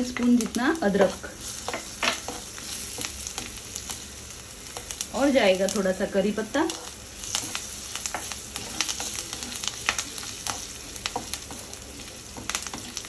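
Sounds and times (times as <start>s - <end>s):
spices sizzling in hot oil: 0.0s - 13.0s
spatula scraping a pan: 6.7s - 13.0s.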